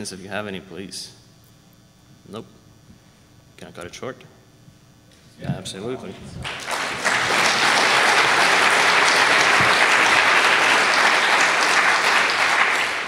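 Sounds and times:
crowd applauding: 0:06.4 - 0:13.0.

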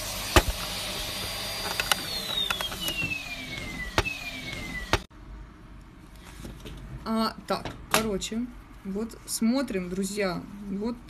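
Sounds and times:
vacuum cleaner motor whine: 0:00.0 - 0:05.1.

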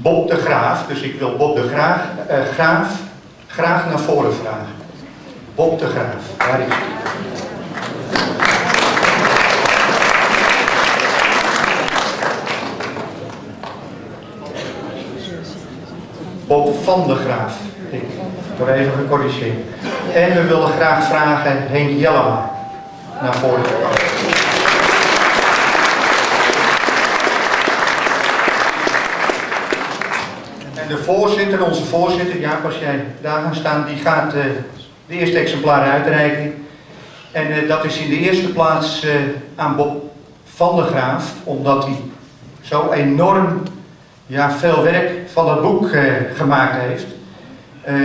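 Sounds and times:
audience applauding: 0:06.4 - 0:14.0, 0:23.3 - 0:30.7.

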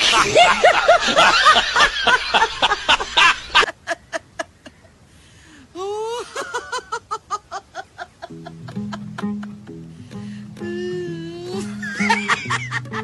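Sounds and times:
high-pitched laugh: 0:00.0 - 0:04.8, 0:05.8 - 0:09.7, 0:11.5 - 0:13.0
people laughing: 0:00.0 - 0:04.8, 0:06.0 - 0:09.7, 0:11.5 - 0:13.0
music with low steady notes: 0:08.3 - 0:13.0.

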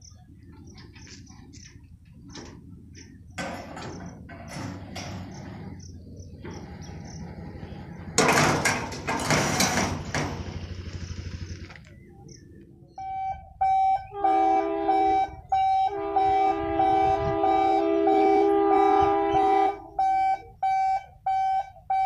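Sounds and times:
barrier mechanism clanking: 0:03.4 - 0:10.8
train horn blasts: 0:13.0 - 0:21.7.

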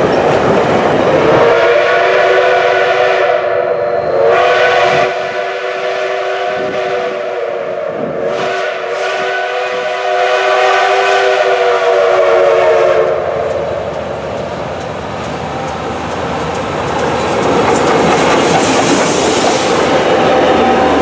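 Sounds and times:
steam locomotive passing on rails: 0:00.0 - 0:21.0
steam whistle chord: 0:01.3 - 0:13.5.

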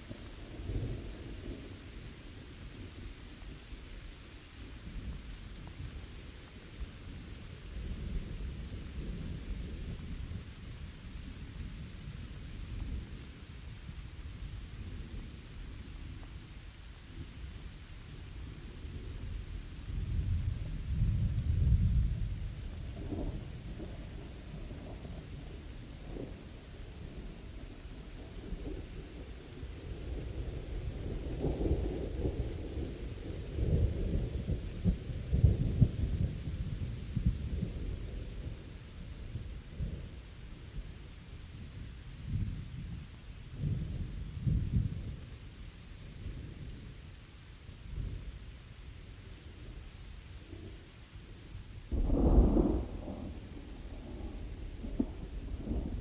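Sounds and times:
steady rain: 0:00.0 - 0:56.0
rolling thunder: 0:18.8 - 0:40.2, 0:51.5 - 0:56.0.

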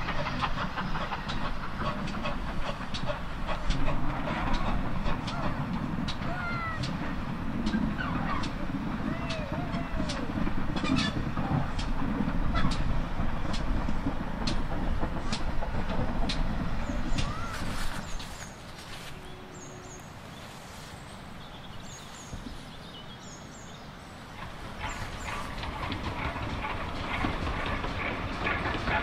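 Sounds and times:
train wheel clicks: 0:00.0 - 0:18.9, 0:24.3 - 0:29.0
steam locomotive rumble: 0:00.0 - 0:29.0
small birds chirping: 0:16.7 - 0:25.6.

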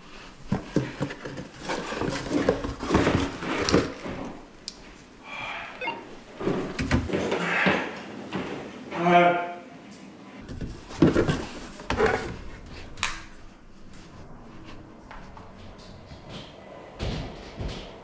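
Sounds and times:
cardboard box knocking and scraping: 0:00.5 - 0:04.0, 0:10.5 - 0:12.2.

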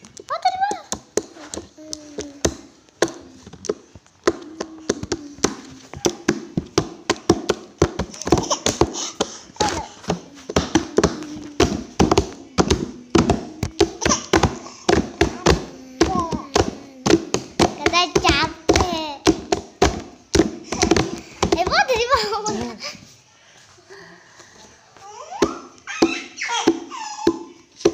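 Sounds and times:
baby babbling: 0:01.4 - 0:02.4, 0:08.2 - 0:19.2, 0:25.0 - 0:27.6.

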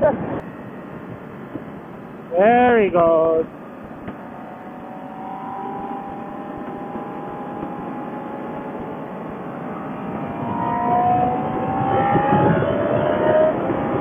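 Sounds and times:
wind noise: 0:00.0 - 0:14.0
motorcycle engine running: 0:03.4 - 0:09.8.

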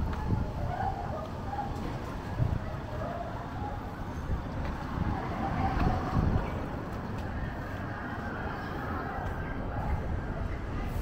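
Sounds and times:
faint voices: 0:00.0 - 0:11.0
rumble of passing cars: 0:00.0 - 0:11.0.

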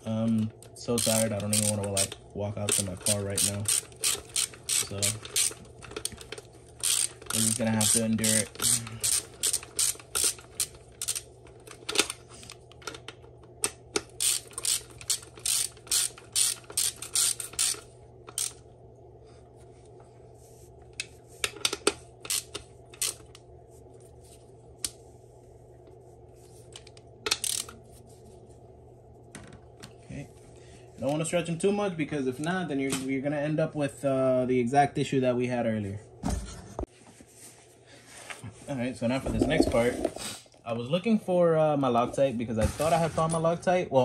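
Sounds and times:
hand ratchet clicking: 0:00.9 - 0:11.2, 0:14.0 - 0:18.6, 0:21.6 - 0:23.2, 0:27.3 - 0:27.7.

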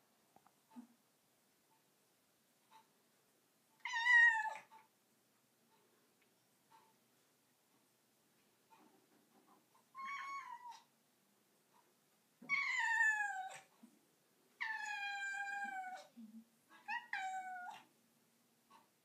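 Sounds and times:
cat meowing: 0:03.8 - 0:04.7, 0:10.0 - 0:10.9, 0:12.4 - 0:13.7, 0:14.6 - 0:16.1, 0:16.8 - 0:17.9.

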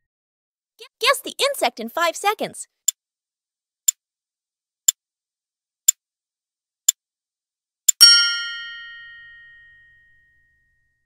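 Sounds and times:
bell-like ding: 0:08.0 - 0:10.8.

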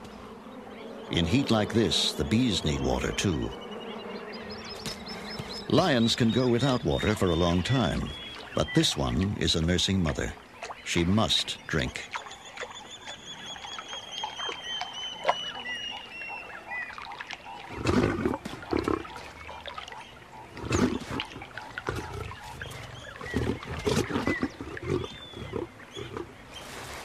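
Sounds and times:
lioness snarling and growling: 0:17.6 - 0:26.4.

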